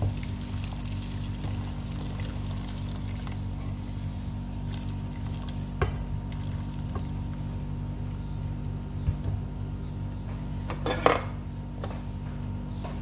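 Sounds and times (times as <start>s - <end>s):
broth pouring and splashing: 0.0s - 3.6s, 4.6s - 7.3s.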